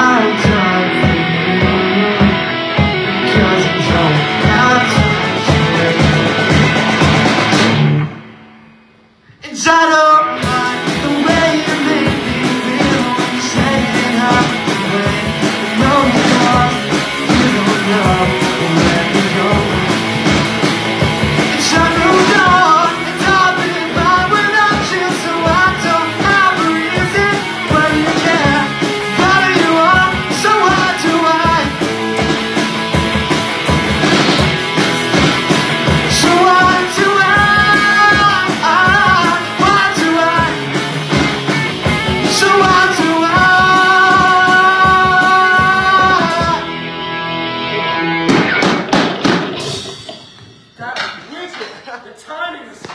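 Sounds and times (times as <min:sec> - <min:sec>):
person singing: 0:00.0 - 0:07.0, 0:09.3 - 0:20.4, 0:21.4 - 0:32.6, 0:36.0 - 0:40.9, 0:42.1 - 0:46.8
rock band playing: 0:00.0 - 0:09.4, 0:10.1 - 0:52.9.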